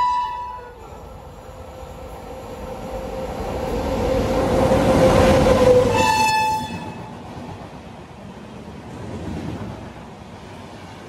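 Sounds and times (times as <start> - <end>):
train horn: 0.0 - 1.0, 5.0 - 7.2
steady locomotive whine: 0.0 - 11.0
train rumble and wheel noise: 0.0 - 11.0.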